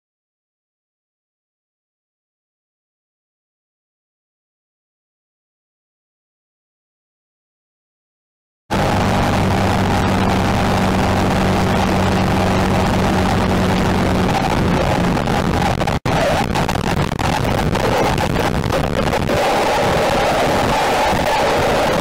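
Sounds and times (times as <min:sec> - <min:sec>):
vehicle engine running: 0:08.7 - 0:22.0
wind and road noise: 0:08.7 - 0:22.0.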